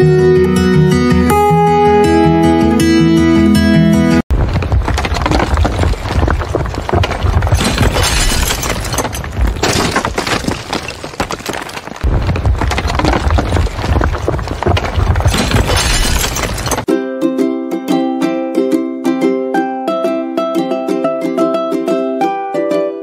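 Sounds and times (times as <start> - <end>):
debris crashing and shattering: 4.3 - 16.9.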